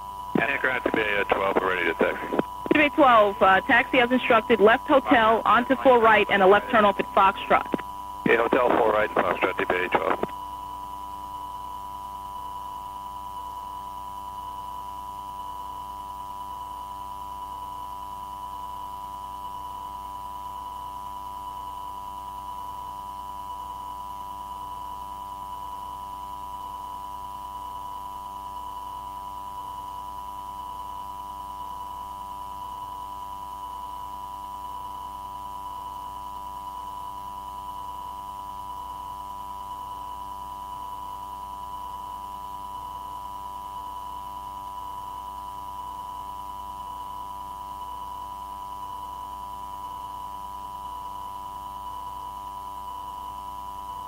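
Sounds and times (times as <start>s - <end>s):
faint regular pulsing: 0.4s - 10.4s
steady electronic radio tone: 0.4s - 10.4s.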